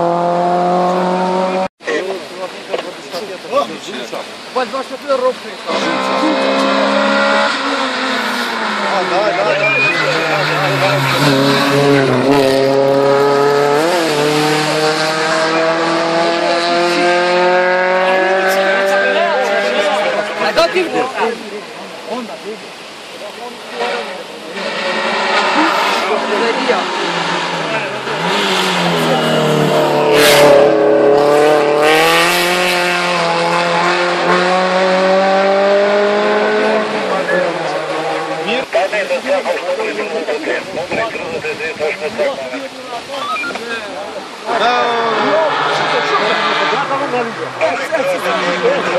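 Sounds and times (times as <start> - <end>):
car engine revving hard: 0.0 - 1.7, 5.6 - 21.2, 23.8 - 38.7, 44.4 - 48.9.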